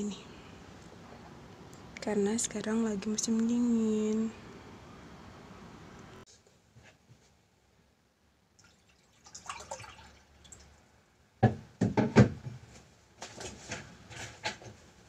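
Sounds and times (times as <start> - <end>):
water pouring into a cup: 8.6 - 10.7
objects knocking on a desk: 11.4 - 12.6.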